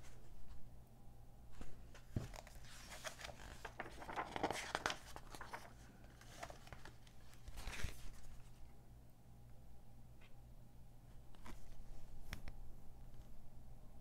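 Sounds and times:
faint low hum: 0:00.0 - 0:14.0
magazine pages turning: 0:01.6 - 0:08.6.

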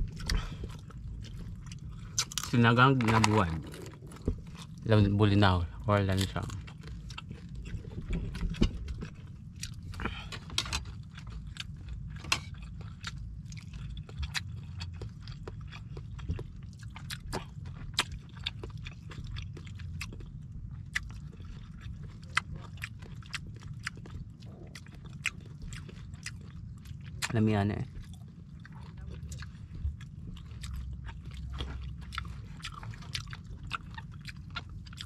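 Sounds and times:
chewing mouth clicks and smacks: 0:06.2 - 0:27.4.

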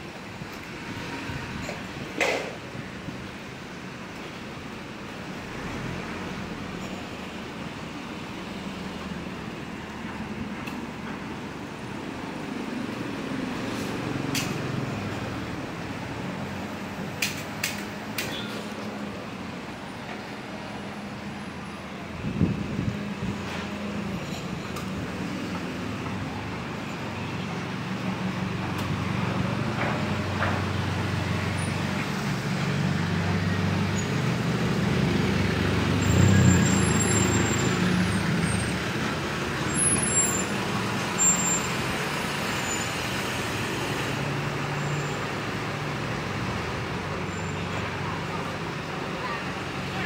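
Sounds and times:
cars on road: 0:00.0 - 0:50.0
motorcycle: 0:31.4 - 0:45.2.

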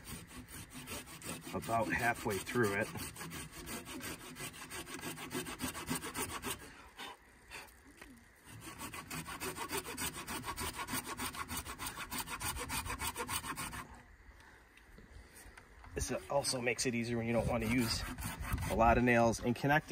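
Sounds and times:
hand saw cutting wood: 0:00.0 - 0:07.7, 0:08.4 - 0:14.0, 0:17.3 - 0:19.2.

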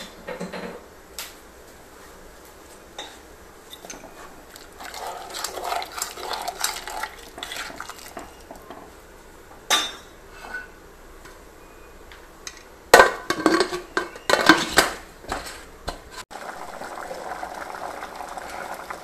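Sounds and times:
curry bubbling: 0:04.1 - 0:08.7, 0:16.3 - 0:19.0.

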